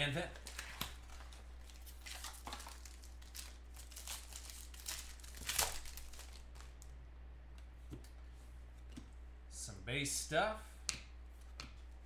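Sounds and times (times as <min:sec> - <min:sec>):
plastic wrapper crinkling: 0:00.1 - 0:07.0.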